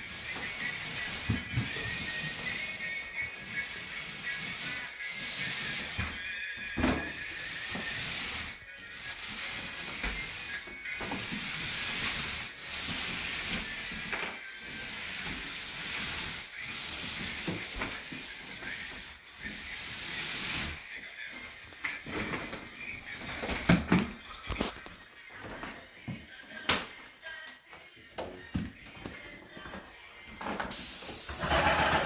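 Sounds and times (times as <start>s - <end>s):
paint roller hissing strokes: 0.0s - 23.7s, 30.7s - 32.0s.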